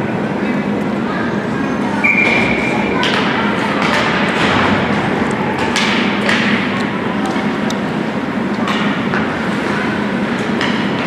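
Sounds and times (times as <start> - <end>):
crowd murmur: 0.0 - 11.0
hockey sticks and puck knocking: 3.0 - 5.0, 5.6 - 6.9, 8.6 - 9.3, 10.4 - 11.0.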